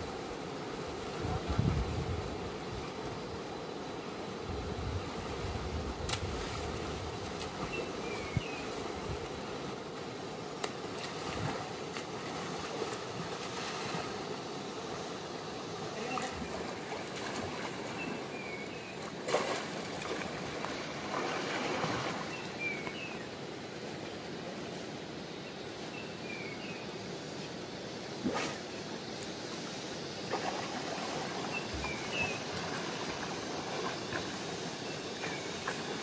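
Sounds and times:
rushing river water: 0:00.0 - 0:36.0
swimmer splashing: 0:19.0 - 0:22.6.

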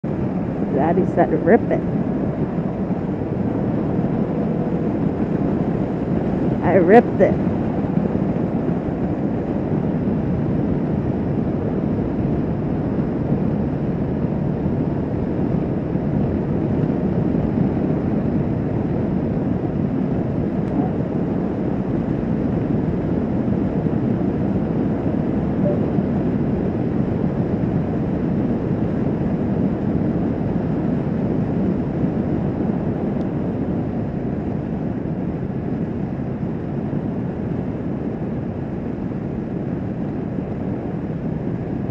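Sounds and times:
wind rush: 0:00.0 - 0:41.9
motorcycle engine cruising: 0:00.3 - 0:10.5.

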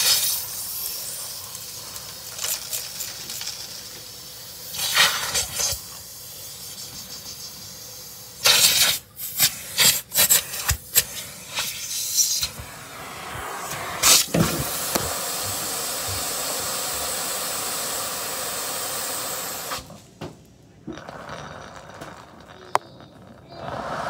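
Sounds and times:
vacuum hose hissing: 0:00.0 - 0:20.0, 0:20.9 - 0:24.0
suction rush: 0:12.2 - 0:19.9, 0:20.9 - 0:24.0.

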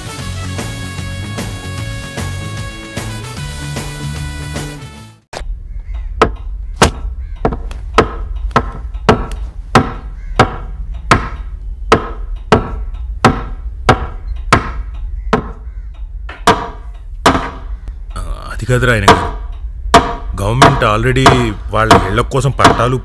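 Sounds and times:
music: 0:00.0 - 0:05.3
low hum: 0:05.4 - 0:22.6
sharp knocks: 0:05.9 - 0:17.8, 0:19.0 - 0:23.0.

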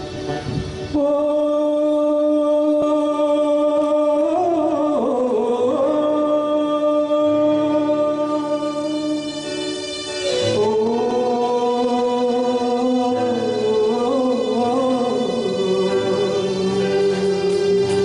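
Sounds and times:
harmonica melody: 0:07.2 - 0:18.0.

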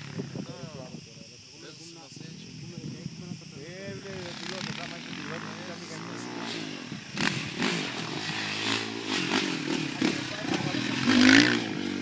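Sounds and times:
dirt bike engine revving: 0:03.8 - 0:12.0.

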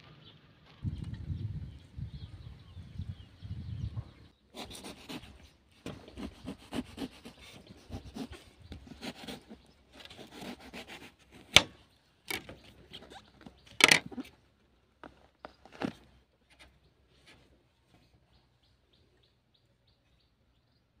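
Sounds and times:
knife sawing through eggplant: 0:04.5 - 0:11.6.

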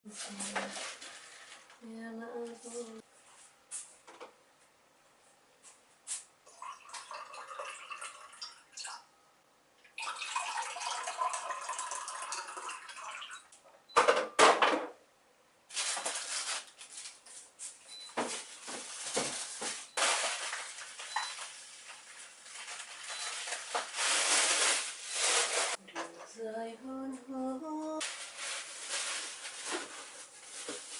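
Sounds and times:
plastic bags rustling: 0:00.1 - 0:01.8, 0:15.7 - 0:25.8, 0:27.7 - 0:30.9.

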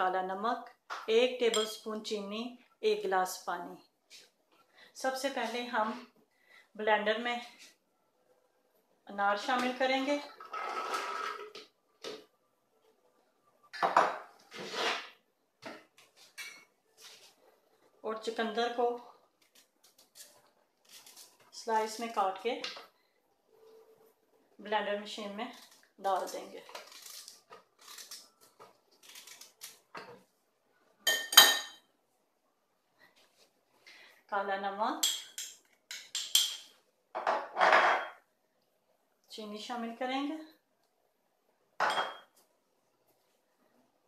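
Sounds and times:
glassware clinking: 0:01.5 - 0:01.8, 0:31.1 - 0:31.8, 0:35.0 - 0:38.2, 0:41.8 - 0:42.3.

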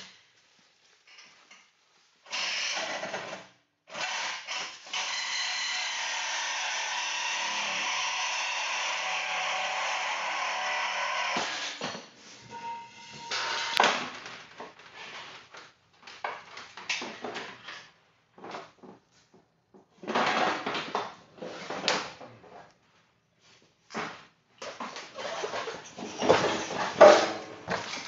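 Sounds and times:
clunks and scrapes of tools: 0:11.3 - 0:14.0, 0:24.0 - 0:28.0.

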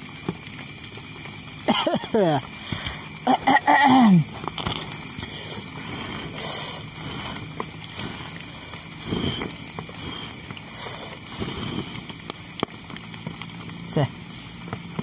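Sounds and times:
person blowing on firewood: 0:04.5 - 0:12.3.

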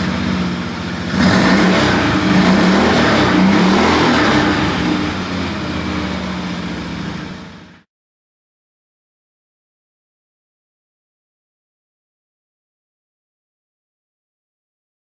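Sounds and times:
engine revving: 0:00.0 - 0:07.8.

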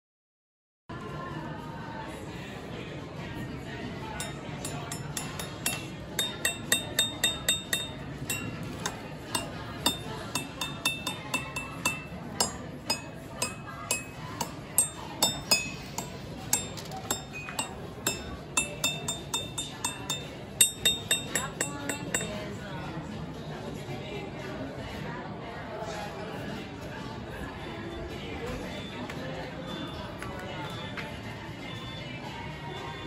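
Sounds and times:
ceramic mugs clinking: 0:04.2 - 0:22.6.

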